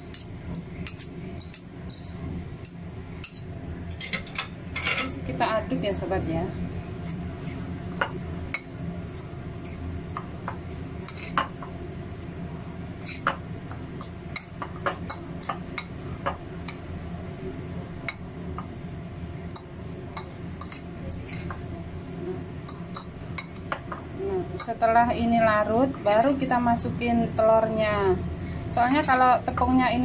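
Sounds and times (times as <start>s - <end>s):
fork scraping ceramic bowl: 11.1s - 11.4s, 20.2s - 21.6s.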